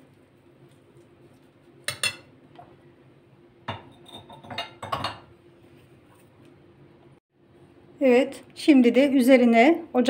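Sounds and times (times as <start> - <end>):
metal spoon clinking on glass bowl: 3.7 - 5.2.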